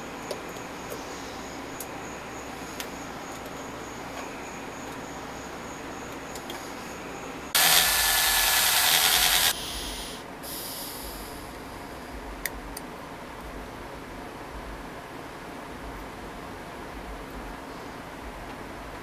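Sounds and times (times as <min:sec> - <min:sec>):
sanding metal part: 0:07.6 - 0:10.2.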